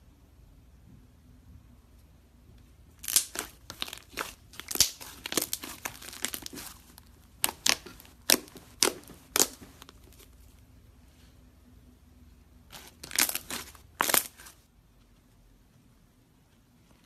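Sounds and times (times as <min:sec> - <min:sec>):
slime popping and crackling: 0:03.0 - 0:10.4, 0:12.7 - 0:14.5.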